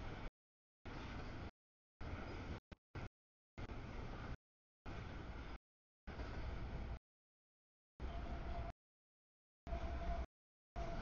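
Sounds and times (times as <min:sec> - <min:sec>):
train whine: 0:08.0 - 0:08.7, 0:09.7 - 0:11.0.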